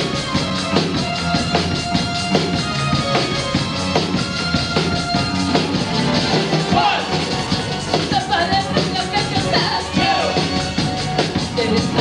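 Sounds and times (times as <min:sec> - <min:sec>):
bass guitar: 0:00.0 - 0:12.0
drum kit beat: 0:00.0 - 0:12.0.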